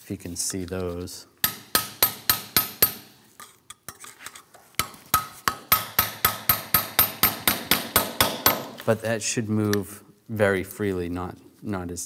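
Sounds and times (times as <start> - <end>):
metal tool tapping on metal: 1.4 - 4.0, 4.8 - 8.8.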